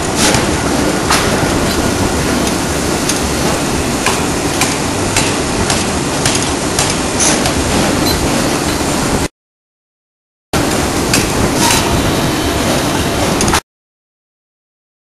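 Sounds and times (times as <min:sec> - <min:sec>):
ring rolling machine running: 0:00.0 - 0:09.3, 0:10.6 - 0:13.6
sharp metal knocks: 0:04.0 - 0:07.9.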